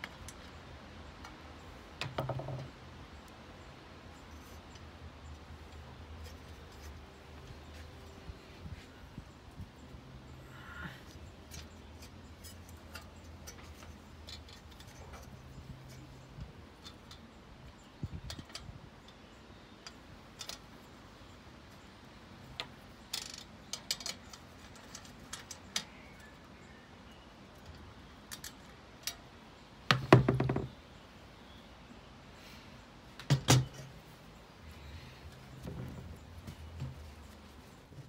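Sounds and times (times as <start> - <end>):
rattling knocks: 2.0 - 2.8, 29.9 - 30.7.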